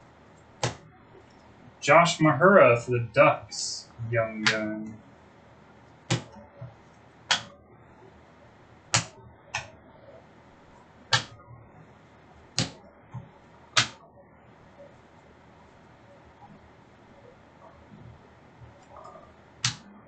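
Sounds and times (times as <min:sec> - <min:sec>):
cards slapped on a table: 0:06.1 - 0:06.3, 0:11.1 - 0:11.3, 0:13.8 - 0:14.0.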